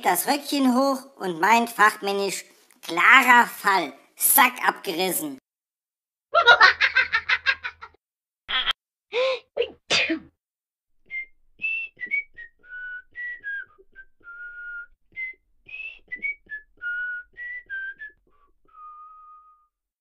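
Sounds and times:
person laughing: 6.4s - 9.3s
person whistling a tune: 11.0s - 19.7s.

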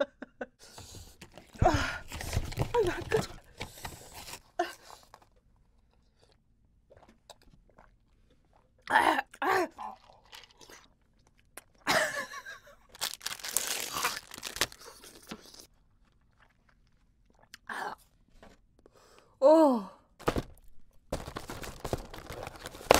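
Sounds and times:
plastic wrapper crinkling and tearing: 12.9s - 15.7s, 21.1s - 22.9s.

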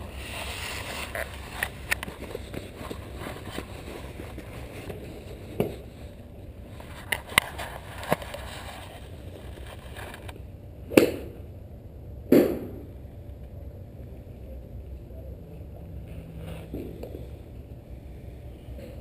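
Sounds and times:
steady low rumble: 0.0s - 19.0s
golf club striking ball: 10.9s - 11.4s, 12.3s - 12.9s.

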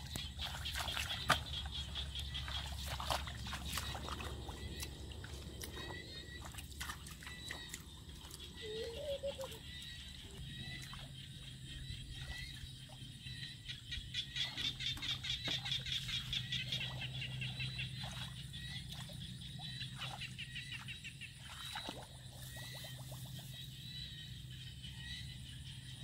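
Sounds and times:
small splashes in water: 0.0s - 11.2s, 14.9s - 23.6s
frogs calling in chorus: 0.0s - 26.0s.

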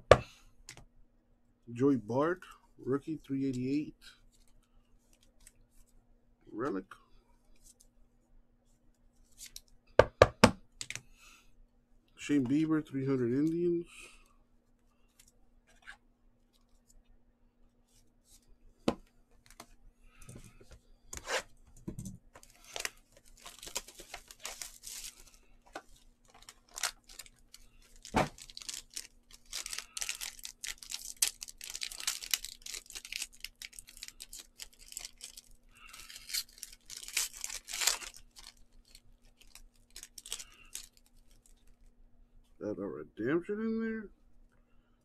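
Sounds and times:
foil wrapper tearing and crinkling: 22.4s - 25.4s, 26.2s - 41.7s.

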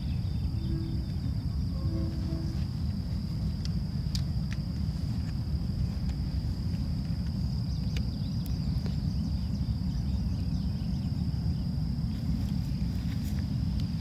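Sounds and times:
high-pitched insect buzz: 0.0s - 4.2s
distant freight train rumble: 0.0s - 14.0s.

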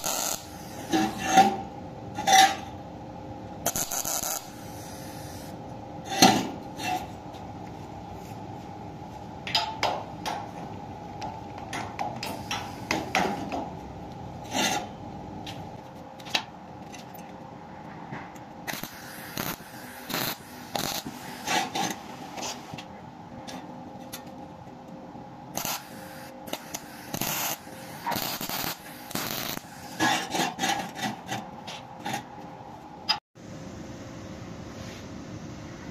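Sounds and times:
welding arc crackling: 0.0s - 0.9s, 3.7s - 5.2s, 18.6s - 22.0s, 25.6s - 30.0s
welder steady hum: 0.0s - 16.5s, 18.4s - 30.2s.

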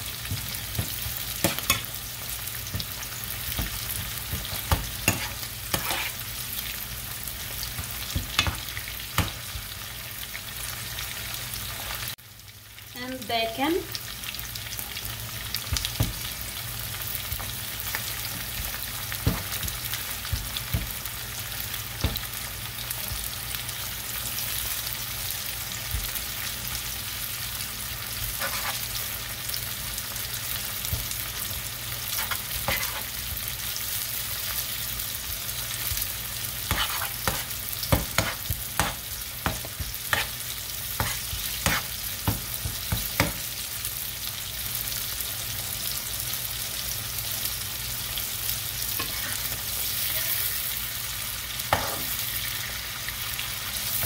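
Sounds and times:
bacon and onions sizzling: 0.0s - 54.0s
metal spoon scraping a pan: 4.3s - 6.3s, 28.2s - 29.0s, 32.1s - 33.2s, 36.7s - 40.4s, 41.0s - 42.0s, 49.0s - 49.6s.

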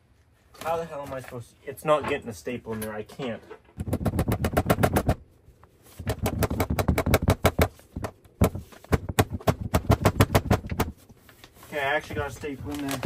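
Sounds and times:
rapid sharp knocks: 3.8s - 5.2s, 6.0s - 11.0s.

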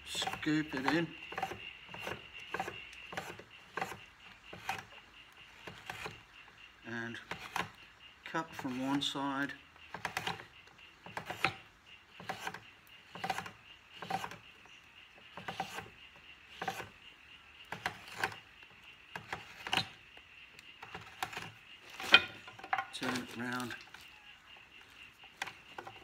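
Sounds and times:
gouge scraping wood: 0.1s - 5.0s, 12.2s - 14.5s, 15.3s - 15.9s, 16.5s - 17.0s, 17.7s - 18.5s, 20.8s - 24.0s.

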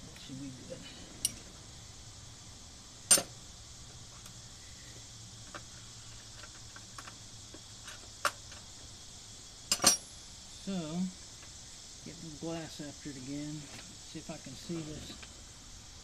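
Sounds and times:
metal hand tools clinking: 9.7s - 10.1s.

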